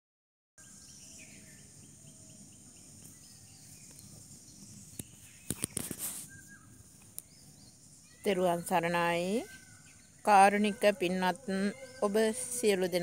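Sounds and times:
high insect hiss: 0.6s - 10.5s
whistled bird notes: 3.1s - 10.3s.

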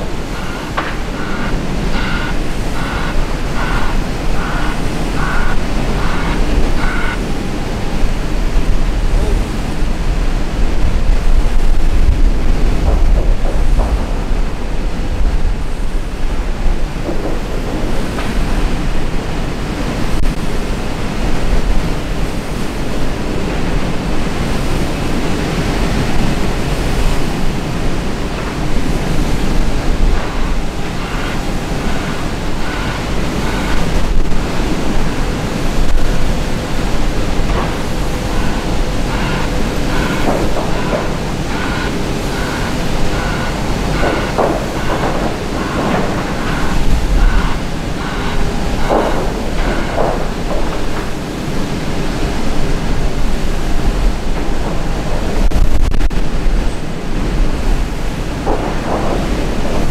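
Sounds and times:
reversing alarm beeps: 0.0s - 8.0s, 29.1s - 51.1s
wind buffeting microphone: 0.0s - 59.9s.

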